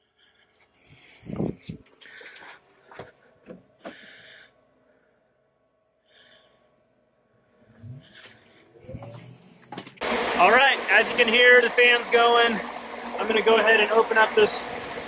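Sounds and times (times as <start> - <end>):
person breathing: 0.0 - 5.4, 6.0 - 6.8, 7.5 - 9.7.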